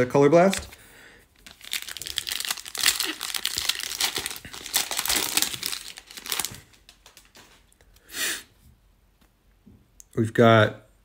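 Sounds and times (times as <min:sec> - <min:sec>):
foil wrapper crinkling: 0:01.4 - 0:07.7.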